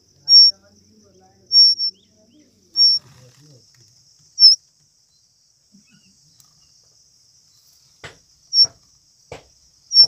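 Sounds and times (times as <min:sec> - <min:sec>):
bird chicks chirping: 0:00.0 - 0:03.6, 0:04.3 - 0:05.3, 0:08.4 - 0:10.0
soft rustling: 0:02.8 - 0:04.9.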